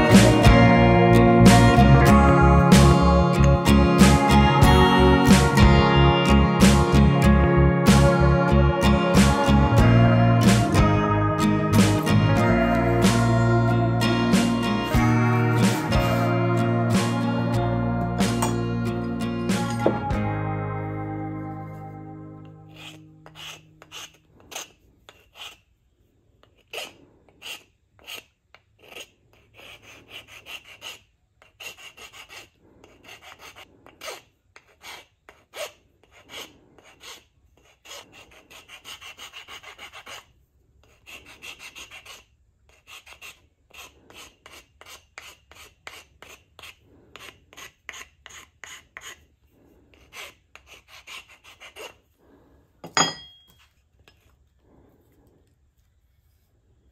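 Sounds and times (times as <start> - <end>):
hand file scraping wood: 0.0 - 11.0, 22.6 - 52.2.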